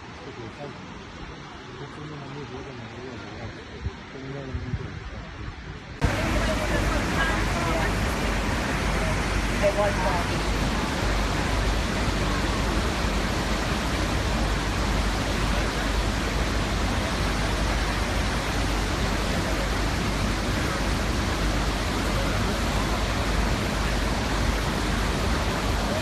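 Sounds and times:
waterfall rushing onto rocks: 6.0s - 26.0s.

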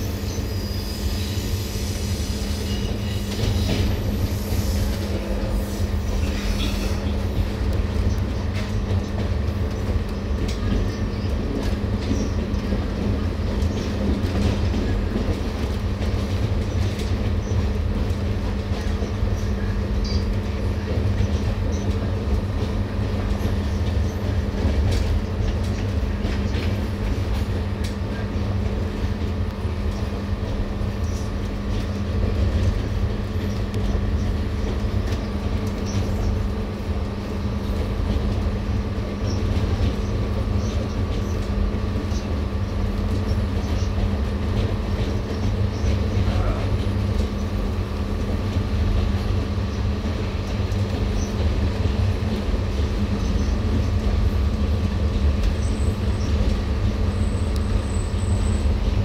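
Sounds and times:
train wheels rumbling on rail: 0.0s - 59.0s
constant hum: 1.6s - 59.0s.

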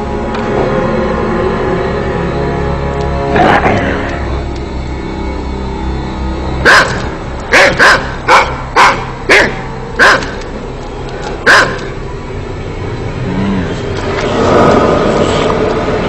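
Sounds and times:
steady noise: 0.0s - 16.0s
dog barking: 6.6s - 10.5s, 11.4s - 12.0s.

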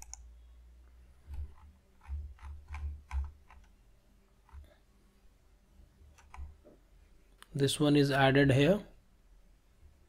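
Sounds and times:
faint computer clicks: 0.0s - 0.3s.

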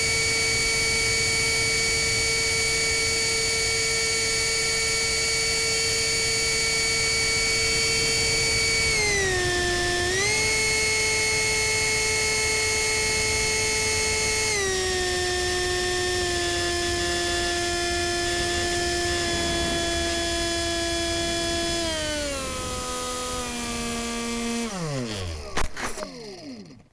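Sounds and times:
electric ducted fan whining: 0.0s - 26.9s.

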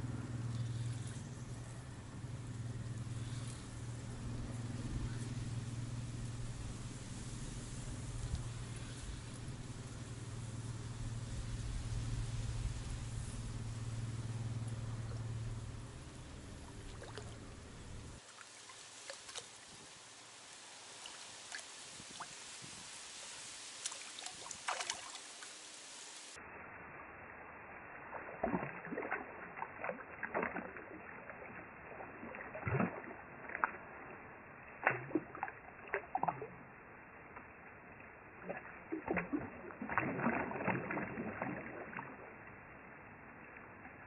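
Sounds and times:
faint hiss with ticks: 0.0s - 26.4s
fish thrashing splashing water: 16.4s - 19.8s, 23.4s - 25.6s, 28.1s - 36.7s, 38.3s - 42.4s.

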